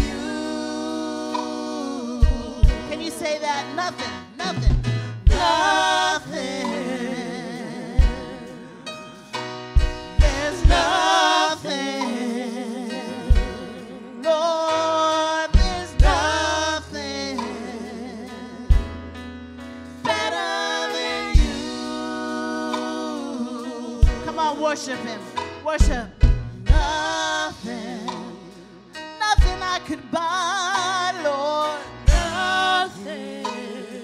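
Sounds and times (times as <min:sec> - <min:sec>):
singers with vibrato: 0:00.0 - 0:03.7, 0:05.3 - 0:09.3, 0:10.2 - 0:18.7, 0:20.1 - 0:25.1
drum hits: 0:02.2 - 0:03.2, 0:04.4 - 0:07.1, 0:08.0 - 0:08.5, 0:09.3 - 0:12.3, 0:13.3 - 0:13.8, 0:15.6 - 0:16.6, 0:20.1 - 0:22.0, 0:25.4 - 0:28.5, 0:29.4 - 0:29.8, 0:32.1 - 0:32.4.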